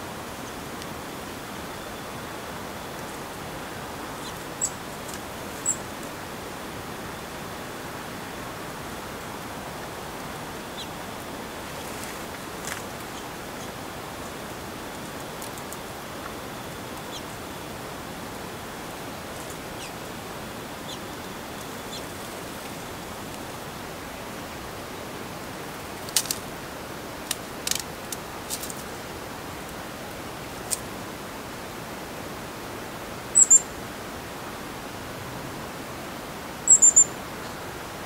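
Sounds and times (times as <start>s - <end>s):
steady garden hiss: 0.0s - 38.0s
high songbird chirps: 4.2s - 4.9s, 5.6s - 5.9s, 10.7s - 11.0s, 19.7s - 20.0s, 20.7s - 22.2s, 33.3s - 33.7s, 36.7s - 37.6s
short bird calls: 33.4s - 33.7s, 36.7s - 37.6s.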